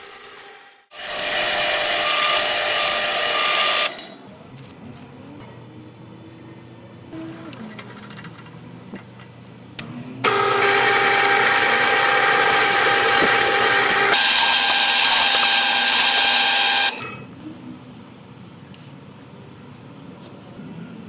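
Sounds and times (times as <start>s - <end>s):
drill press whine: 0.0s - 4.2s, 10.2s - 17.3s.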